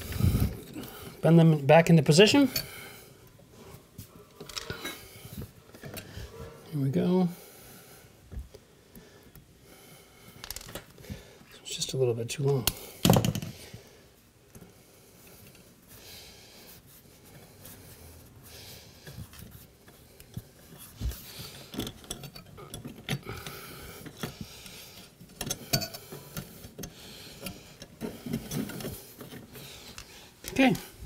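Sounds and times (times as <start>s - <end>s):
wires rubbing and clicking: 0.0s - 0.9s, 3.3s - 6.9s, 10.3s - 11.0s, 16.6s - 31.0s.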